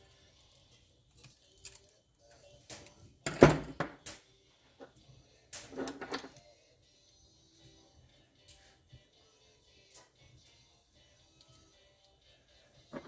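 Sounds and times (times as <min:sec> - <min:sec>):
tools clinking on a workbench: 0:00.5 - 0:02.0.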